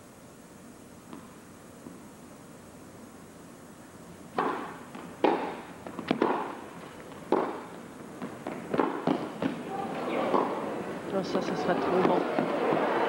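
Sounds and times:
tennis ball pops off racquet: 4.4 - 6.6, 7.3 - 9.6.

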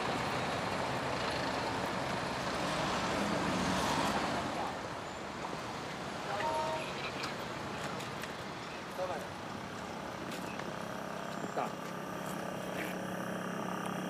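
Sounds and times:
trucks and cars passing: 0.0 - 14.0.

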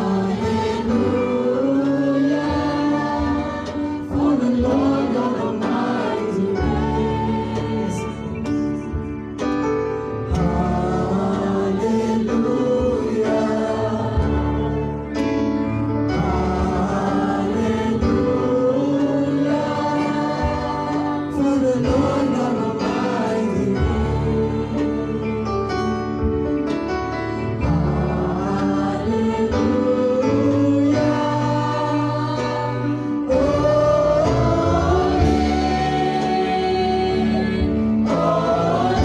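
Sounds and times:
several voices singing: 0.0 - 9.2, 10.1 - 26.3, 27.4 - 39.0
band playing: 0.0 - 39.0.

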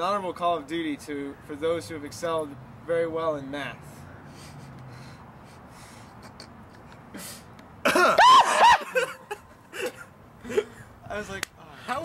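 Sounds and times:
person laughing high-pitched: 7.9 - 10.7.

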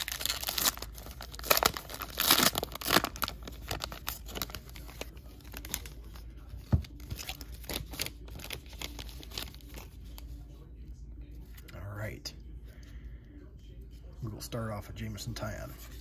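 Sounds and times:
foil wrapper tearing and crinkling: 0.0 - 6.1, 6.9 - 9.9
cards rustling: 0.0 - 10.5.

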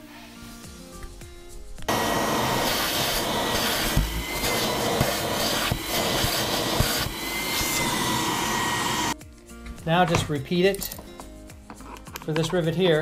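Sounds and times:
vacuum cleaner whining: 1.9 - 9.2.

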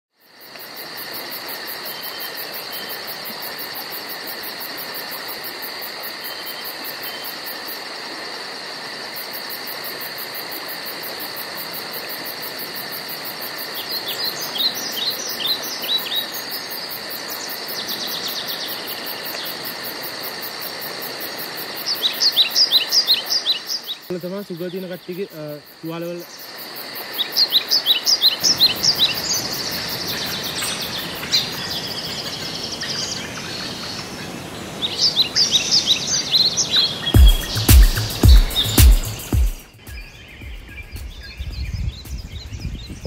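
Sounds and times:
insects droning: 0.1 - 43.0
high pulsing insect trill: 0.2 - 43.0.

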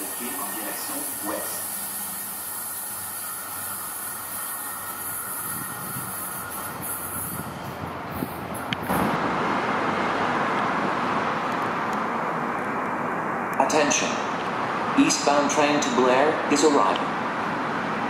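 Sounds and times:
light-rail train hissing: 0.0 - 8.7
rush of open-air noise: 0.0 - 18.0.

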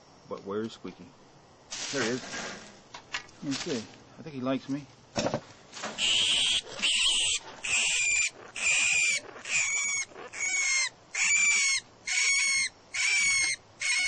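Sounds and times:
rodent squeaking: 6.0 - 14.0.

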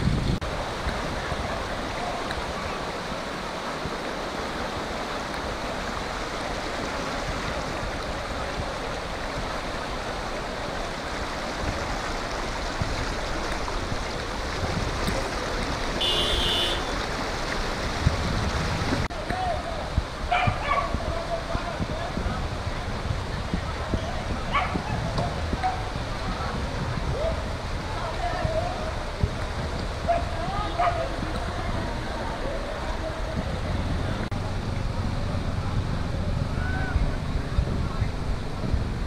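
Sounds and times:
floodwater rushing: 0.0 - 39.0.

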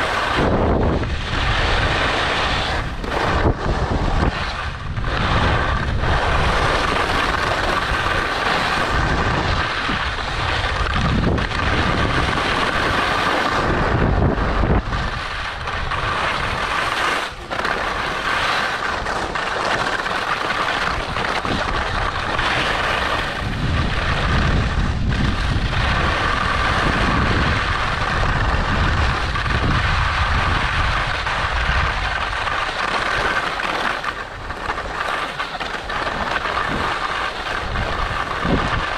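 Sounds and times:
skis scraping over snow: 0.0 - 38.9
wind rumbling on microphone: 0.0 - 38.9.

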